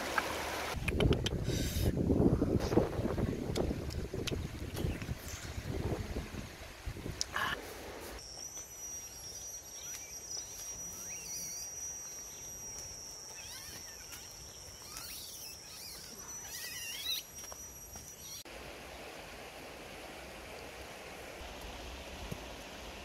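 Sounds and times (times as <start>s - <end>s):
birds chirping: 7.3s - 18.5s
high-pitched insect drone: 8.2s - 18.4s.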